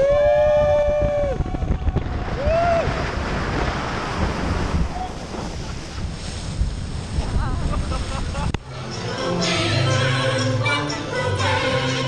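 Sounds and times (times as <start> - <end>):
wind buffeting microphone: 0.0 - 8.6.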